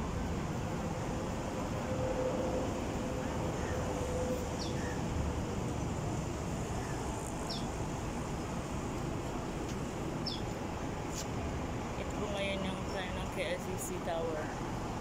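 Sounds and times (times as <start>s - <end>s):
city traffic rumble: 0.0s - 15.0s
bird chirping: 7.5s - 7.7s, 10.2s - 10.4s.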